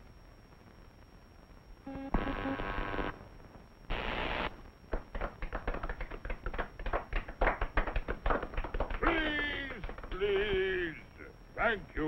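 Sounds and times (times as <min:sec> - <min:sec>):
static hiss: 0:00.0 - 0:12.0
short buzzing electronic tone: 0:01.9 - 0:03.2
irregular patter of clicks: 0:04.9 - 0:10.6.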